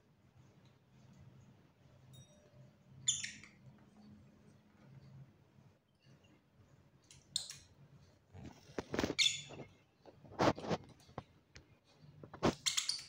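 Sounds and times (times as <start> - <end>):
birds chirping high and squeaky: 3.0 - 3.7, 9.0 - 9.7, 12.5 - 13.0.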